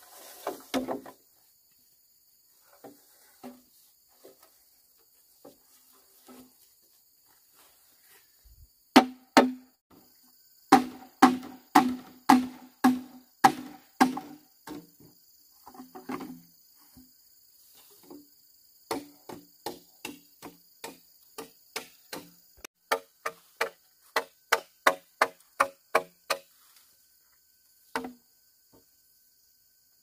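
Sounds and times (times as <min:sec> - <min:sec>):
chopping knocks: 0:09.0 - 0:09.7, 0:10.7 - 0:14.8, 0:18.9 - 0:22.3.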